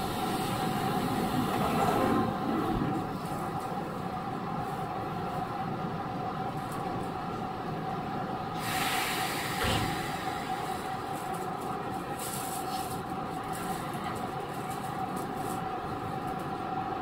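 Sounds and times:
train electrical hum: 0:00.0 - 0:17.0
air hiss: 0:08.6 - 0:11.1.

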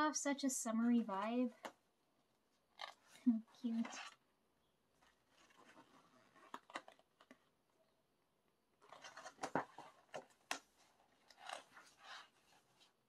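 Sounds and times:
paper pages rustling: 0:04.9 - 0:07.6, 0:08.8 - 0:13.0.

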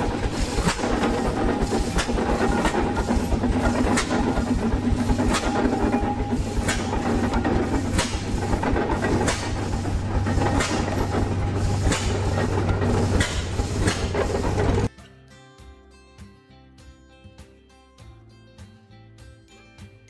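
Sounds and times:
steam traction engine chuffing: 0:00.0 - 0:14.9.

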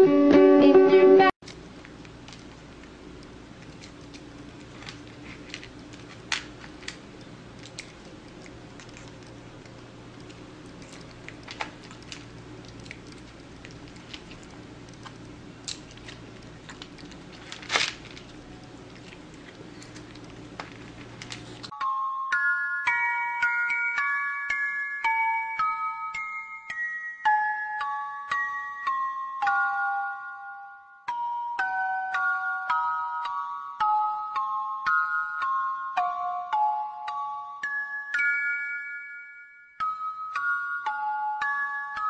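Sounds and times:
glockenspiel music: 0:00.0 - 0:01.4, 0:21.7 - 0:42.0
low room hum: 0:00.0 - 0:21.8
cat chewing food: 0:01.4 - 0:21.7.

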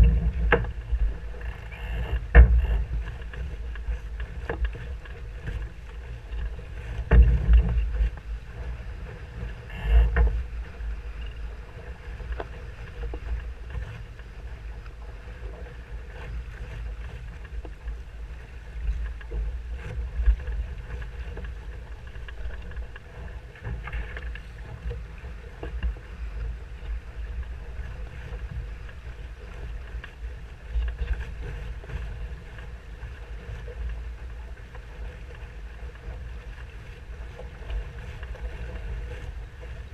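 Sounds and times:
heavy thumps on boat: 0:00.0 - 0:05.7, 0:06.8 - 0:08.7
water rushing along a hull: 0:00.0 - 0:39.9
wind buffeting microphone: 0:00.0 - 0:39.9.

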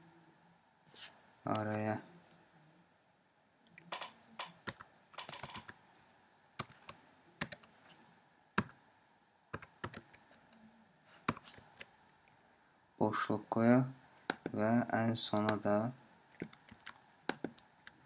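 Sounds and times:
typing on computer keyboard: 0:03.8 - 0:05.8, 0:06.6 - 0:07.7, 0:09.5 - 0:10.2, 0:16.4 - 0:18.0.

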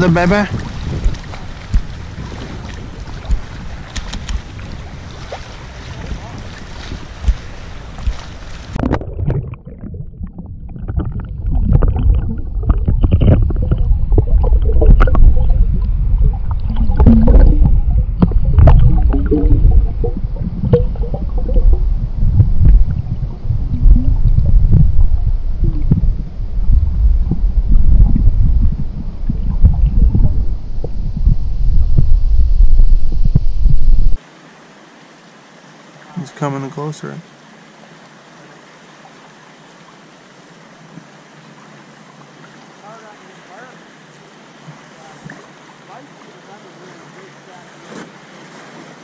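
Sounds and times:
underwater water rumble: 0:00.0 - 0:34.2
water gurgling: 0:00.0 - 0:49.0
underwater clicks and pops: 0:00.5 - 0:02.0, 0:02.6 - 0:04.5, 0:07.2 - 0:21.8.

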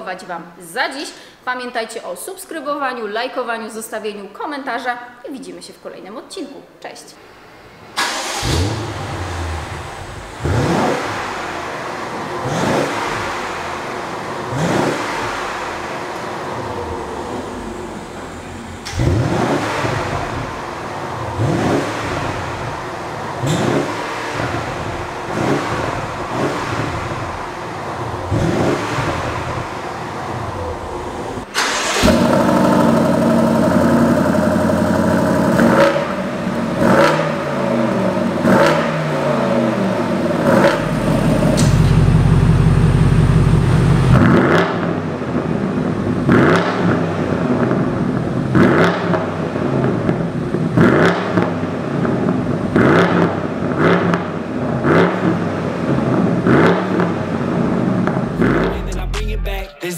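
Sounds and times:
car engine revving: 0:07.4 - 0:59.7.

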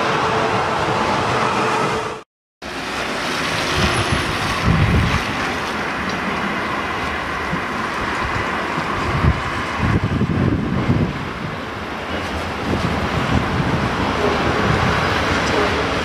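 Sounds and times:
distant electric train approaching: 0:00.0 - 0:16.0
steady rushing noise: 0:00.0 - 0:16.0
wind buffeting microphone: 0:03.4 - 0:16.0.

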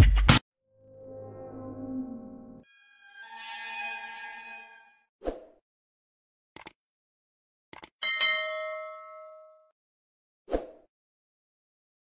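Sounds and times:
quick clicks: 0:06.6 - 0:06.8, 0:07.7 - 0:08.0
bright bell ding: 0:08.0 - 0:09.7.

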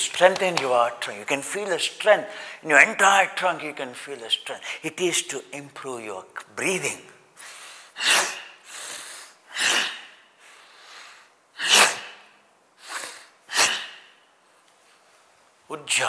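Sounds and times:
soft inhalations: 0:02.3 - 0:02.6, 0:07.4 - 0:15.2
man forceful breathing exhalations: 0:07.4 - 0:14.2.

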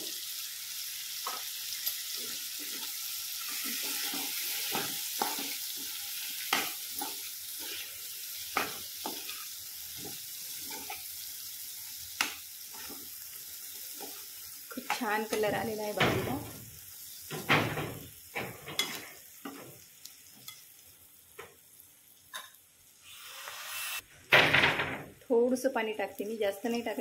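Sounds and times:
vegetables sizzling in oil: 0:00.0 - 0:24.0, 0:25.3 - 0:27.0
spatula scraping and tapping pan: 0:01.2 - 0:07.9, 0:08.5 - 0:11.1, 0:18.4 - 0:19.8.

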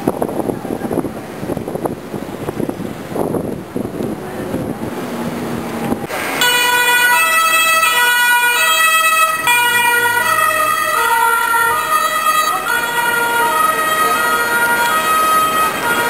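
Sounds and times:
city traffic: 0:00.0 - 0:16.0
two-tone siren: 0:06.1 - 0:16.0.

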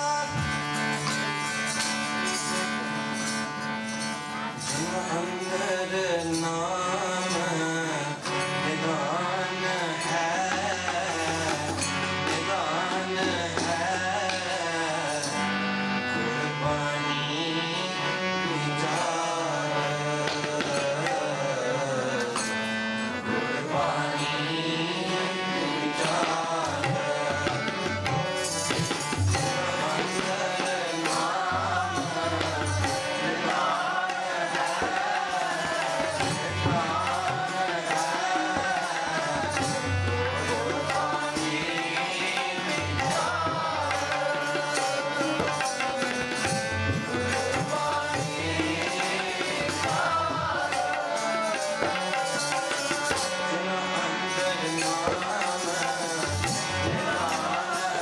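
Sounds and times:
tabla drumming: 0:00.0 - 0:15.5, 0:18.8 - 0:22.5, 0:25.6 - 0:58.0
harmoniums: 0:00.0 - 0:58.0
person singing a hymn: 0:23.1 - 0:28.4, 0:29.5 - 0:45.6, 0:46.4 - 0:58.0.

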